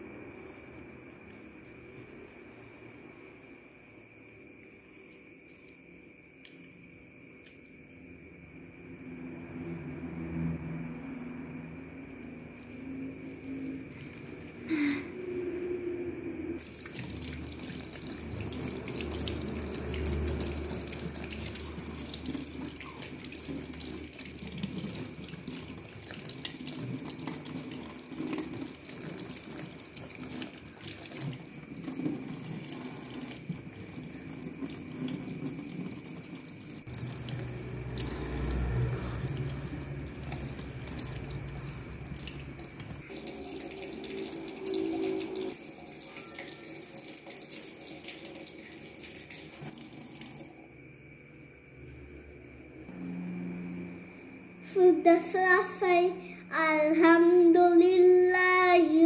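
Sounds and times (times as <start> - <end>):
tap water running into metal sink: 16.6 - 38.6, 39.2 - 50.5.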